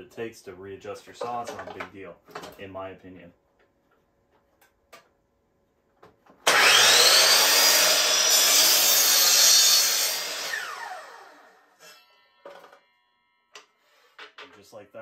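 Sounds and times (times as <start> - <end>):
miter saw whining and cutting wood: 6.4 - 13.8.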